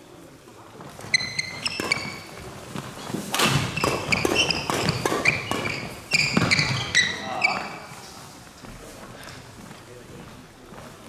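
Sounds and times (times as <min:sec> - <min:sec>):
shoes squeaking on wooden floor: 0:00.7 - 0:11.0
rackets hitting shuttlecock: 0:01.1 - 0:07.2.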